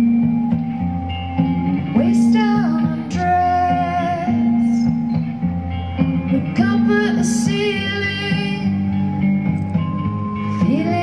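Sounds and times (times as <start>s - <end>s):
woman singing: 1.9s - 5.0s, 6.3s - 9.1s, 10.5s - 11.0s.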